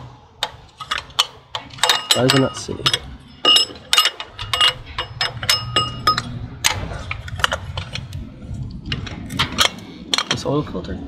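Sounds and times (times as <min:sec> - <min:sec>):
metallic clinks of hand tools: 0:00.8 - 0:06.4.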